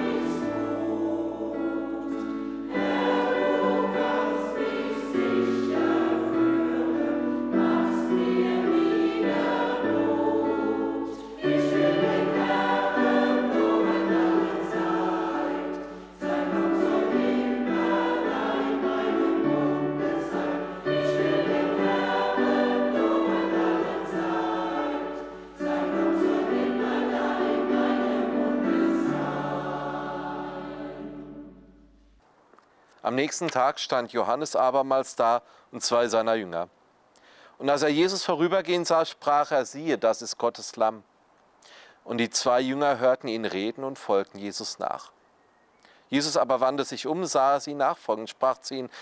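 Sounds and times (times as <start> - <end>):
choir singing a hymn: 0.0 - 32.0
piano accompaniment: 0.0 - 32.2.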